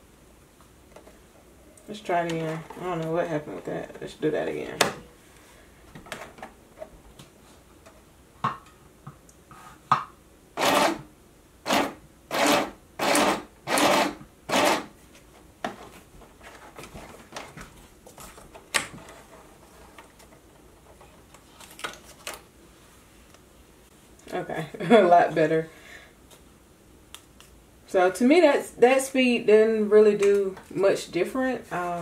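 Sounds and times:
sewing machine running: 10.6 - 11.0, 11.7 - 14.9.

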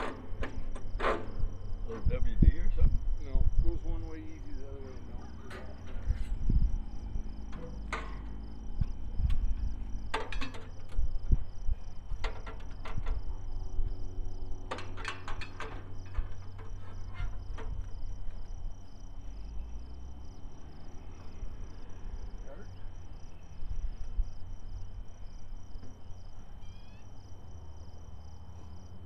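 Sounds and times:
insects chirping: 0.0 - 29.0
low steady rumble: 0.0 - 29.0
clicks and knocks: 7.5 - 11.1, 12.1 - 13.4, 14.7 - 17.9.

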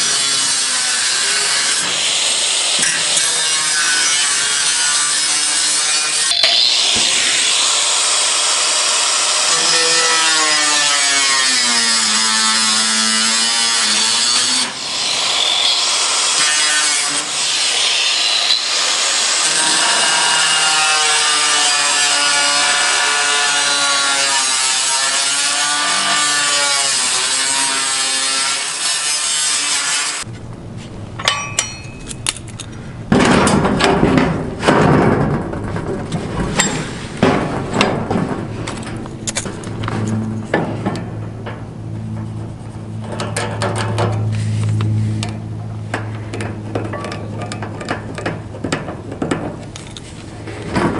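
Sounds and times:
angle grinder cutting sheet metal: 0.0 - 30.3
knocks and handling clatter: 30.3 - 50.9.

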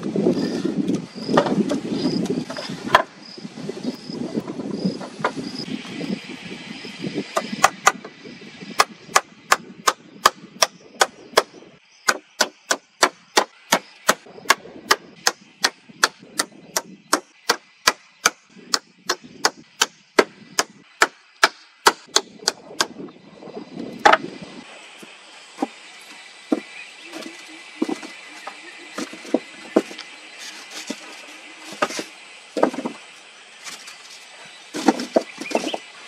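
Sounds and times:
rapid chopping strikes: 8.8 - 23.0.

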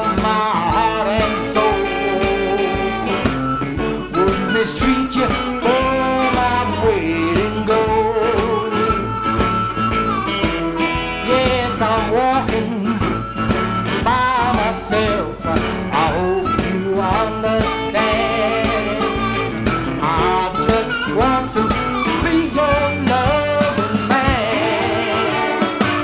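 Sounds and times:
amplified harmonica wailing: 0.0 - 26.0
blues band playing: 0.0 - 26.0.

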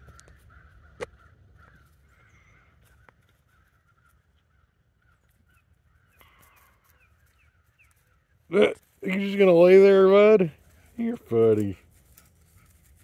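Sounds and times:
distant crows cawing: 0.0 - 8.5.

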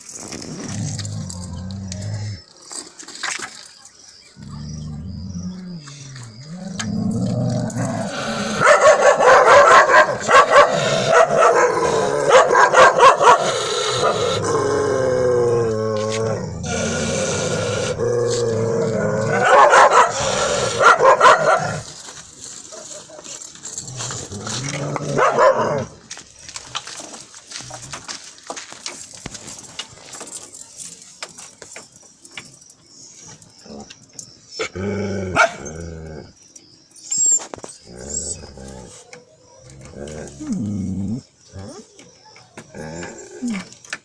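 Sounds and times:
dogs barking and whining: 4.4 - 26.2, 33.6 - 44.0.

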